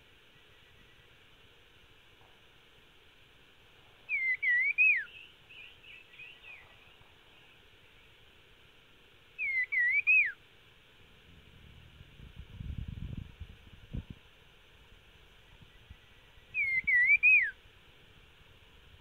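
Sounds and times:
soft bird chirps: 0:03.9 - 0:08.3, 0:09.4 - 0:10.4, 0:15.2 - 0:17.6
bird whistling: 0:04.1 - 0:06.7, 0:09.4 - 0:10.4, 0:16.5 - 0:17.6.

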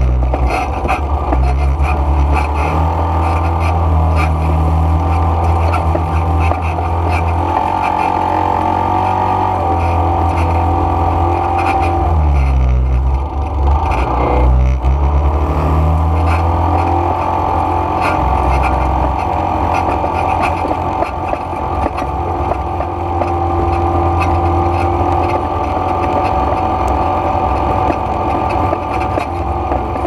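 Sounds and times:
quad bike engine running: 0:00.0 - 0:30.0.

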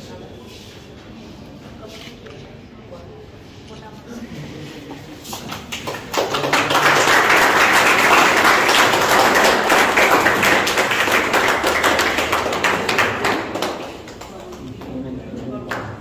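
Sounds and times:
people clapping: 0:04.9 - 0:16.0.

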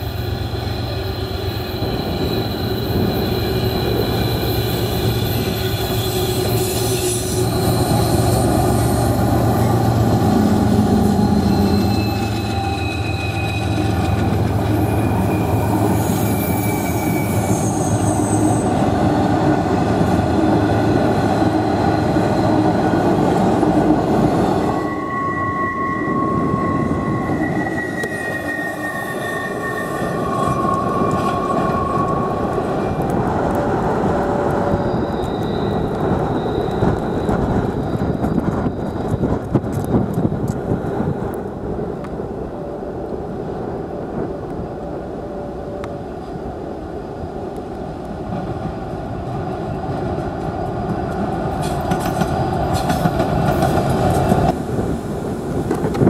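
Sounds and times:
high thin wheel squeals: 0:00.0 - 0:18.9, 0:24.2 - 0:32.7, 0:34.6 - 0:39.9
diesel locomotives droning: 0:00.0 - 0:56.0.

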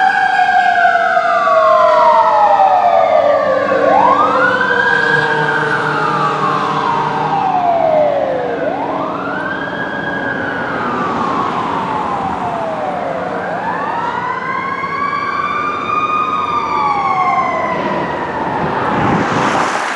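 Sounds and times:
fire engine siren wailing: 0:00.0 - 0:19.9
second higher siren tone: 0:01.9 - 0:13.8.

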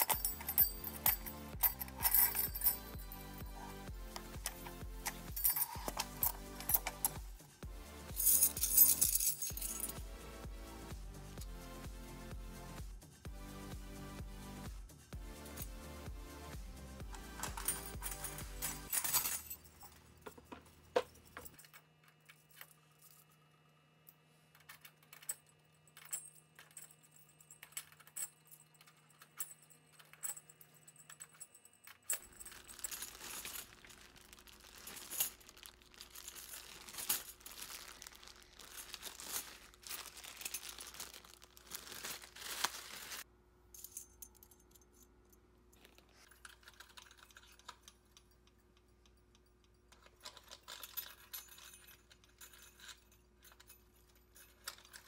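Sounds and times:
metal keys clinking: 0:00.0 - 0:07.4, 0:08.1 - 0:10.0, 0:17.0 - 0:23.4, 0:24.5 - 0:42.4, 0:43.7 - 0:55.0
plastic bags rustling: 0:32.2 - 0:43.2.

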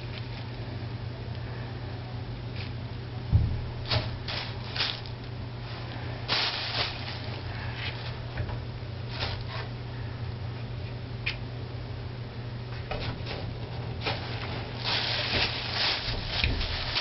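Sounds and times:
steady low hum: 0:00.0 - 0:17.0
dull low bump: 0:03.3 - 0:04.6
plastic bag crinkling: 0:03.8 - 0:08.2, 0:14.0 - 0:17.0.

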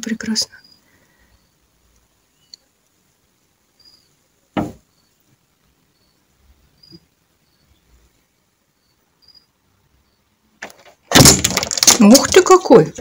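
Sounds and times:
sharp knock: 0:04.6 - 0:04.8.

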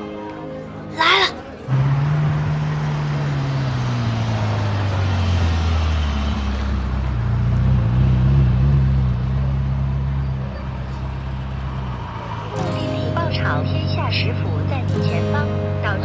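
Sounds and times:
sports car engine at low revs: 0:01.7 - 0:10.5.

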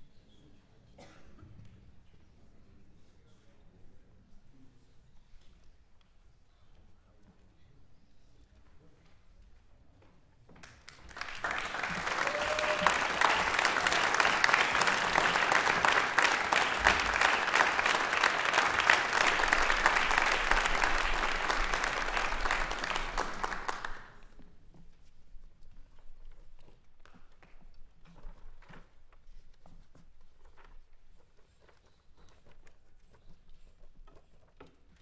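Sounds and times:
audience applauding: 0:10.6 - 0:24.2.

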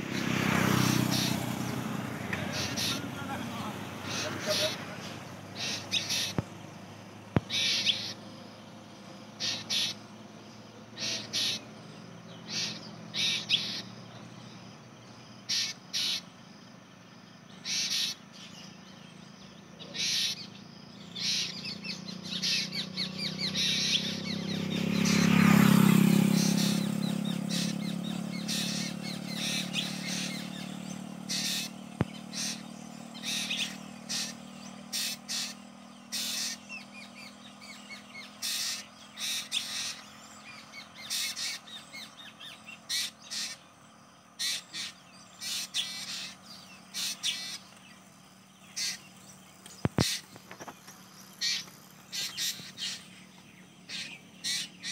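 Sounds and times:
birds calling: 0:00.0 - 0:54.9.

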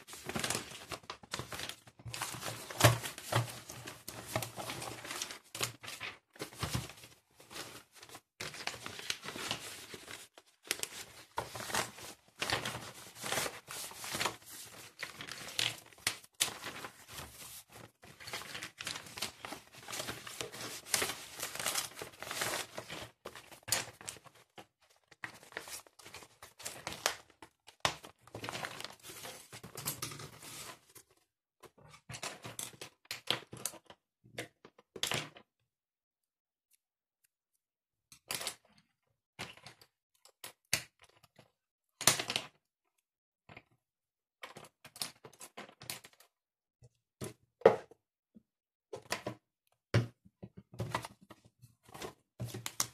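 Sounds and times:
rustling and crinkling of objects: 0:00.0 - 0:35.5, 0:50.4 - 0:52.9.

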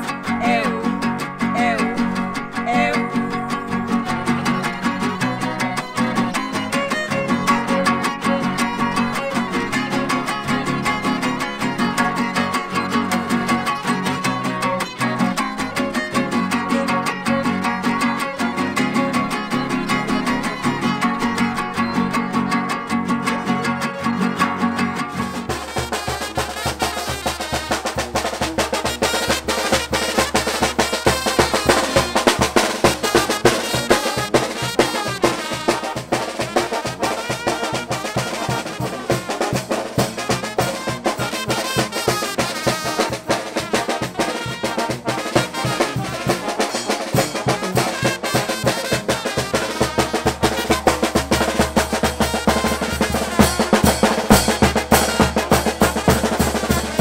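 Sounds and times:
trumpets playing: 0:25.1 - 0:57.0
bass drum and snare beat: 0:25.3 - 0:57.0.

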